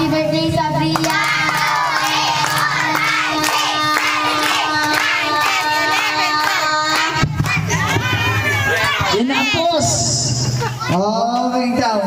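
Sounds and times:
children cheering and shouting: 0.9s - 9.8s.

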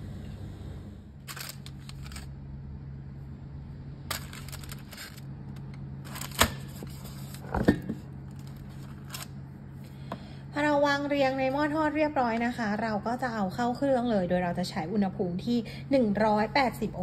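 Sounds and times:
steady low hum: 0.0s - 17.0s
aluminium foil crinkling: 1.2s - 2.3s, 4.1s - 7.5s, 8.3s - 9.4s.

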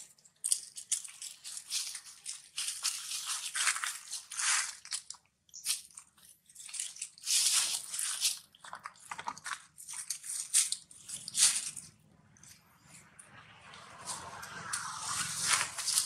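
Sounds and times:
dry leaves rustling and crunching: 0.4s - 8.5s, 9.7s - 11.9s.

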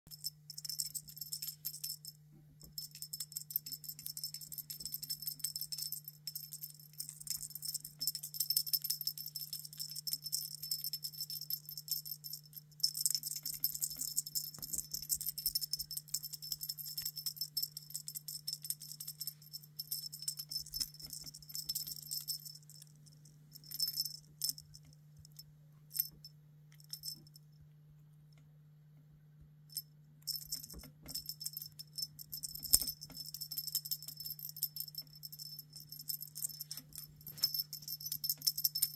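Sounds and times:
small jingling rattle shaken: 0.1s - 27.4s, 29.7s - 38.9s.

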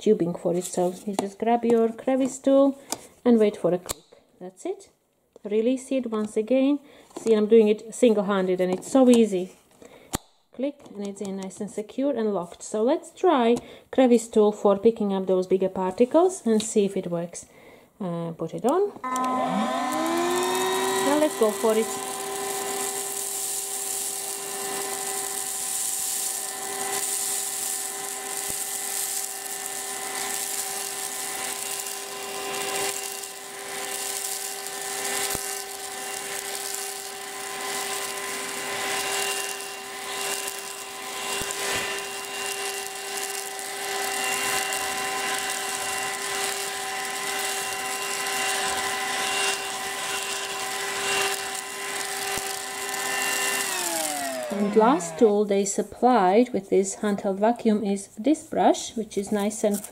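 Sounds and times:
handheld vacuum running: 19.0s - 55.8s.

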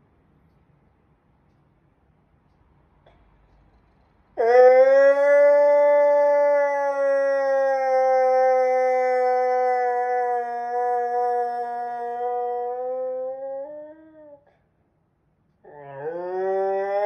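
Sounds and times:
dog howling: 4.4s - 14.5s, 15.6s - 17.0s.

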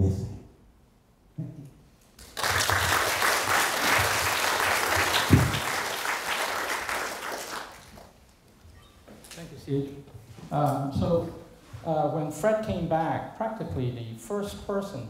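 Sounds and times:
audience applause: 2.2s - 8.2s.

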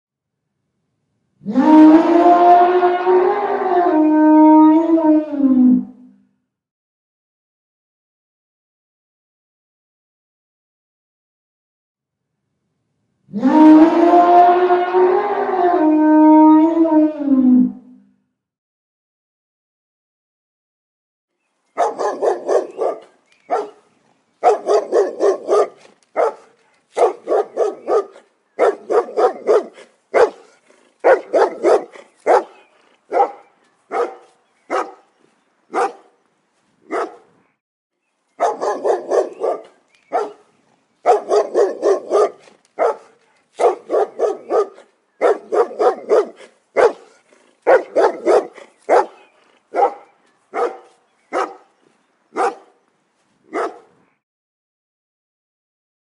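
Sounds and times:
dog barking: 21.8s - 23.8s, 24.4s - 35.1s, 35.7s - 36.1s, 36.9s - 37.3s, 38.4s - 51.7s, 52.4s - 52.7s, 53.5s - 53.9s.

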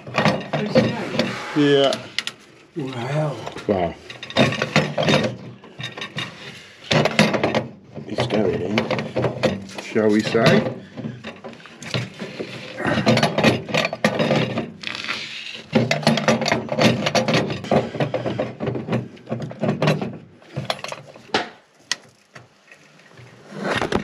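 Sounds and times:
plastic cover clicking and scraping: 23.6s - 24.0s.

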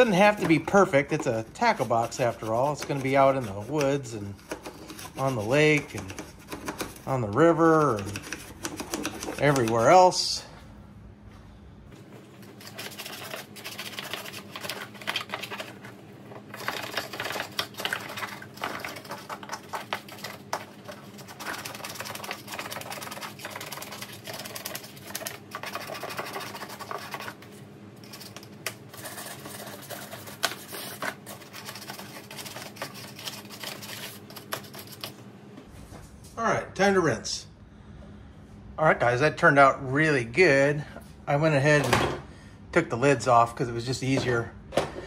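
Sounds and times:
toothbrush scrubbing plastic: 0.0s - 10.1s, 12.5s - 35.2s.

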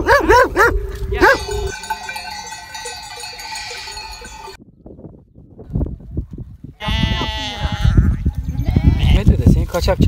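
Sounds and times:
flock bells ringing: 1.2s - 4.6s
sheep and goats bleating: 1.7s - 4.6s, 6.8s - 9.4s.

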